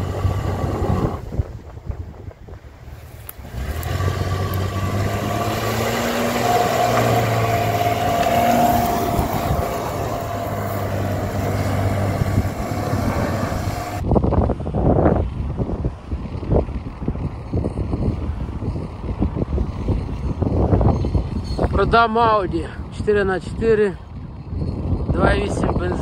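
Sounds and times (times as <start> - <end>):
car engine revving: 0.0 - 1.3, 3.0 - 14.0
wheels churning mud: 0.0 - 1.5, 2.8 - 14.0.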